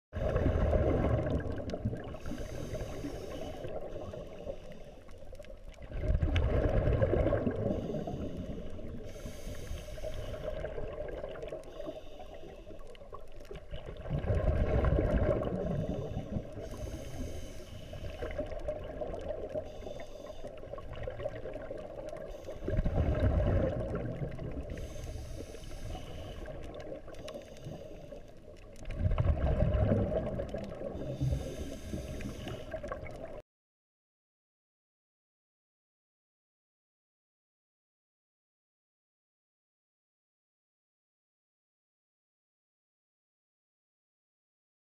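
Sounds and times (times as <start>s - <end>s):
exhaled air bubbling: 0.2s - 33.4s
regulator inhale hiss: 2.1s - 5.3s, 7.6s - 10.8s, 11.6s - 13.1s, 15.7s - 18.6s, 19.6s - 20.8s, 22.3s - 22.9s, 24.6s - 28.5s, 30.9s - 32.9s.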